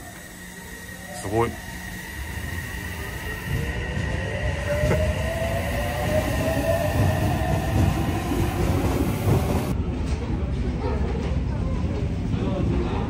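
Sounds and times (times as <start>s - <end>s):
train motor whine rising: 0.0s - 9.8s
train wheels rumbling: 0.0s - 9.8s.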